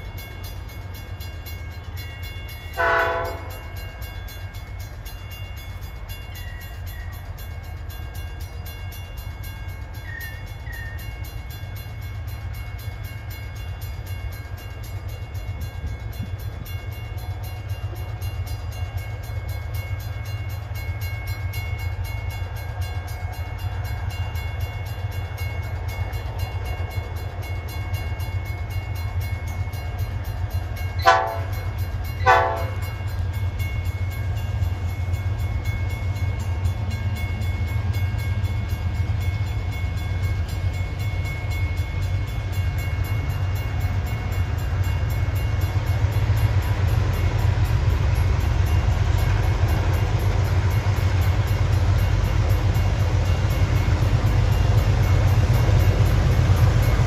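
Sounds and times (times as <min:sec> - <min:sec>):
locomotive engine rumbling: 0:00.0 - 0:57.0
train horn blasts: 0:02.8 - 0:03.7, 0:31.0 - 0:32.9.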